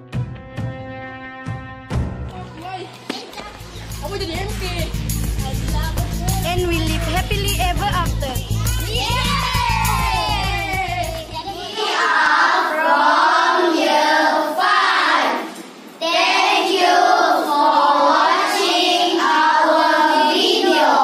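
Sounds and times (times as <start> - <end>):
music with heavy bass: 3.7 - 11.3
children singing together: 8.8 - 21.0.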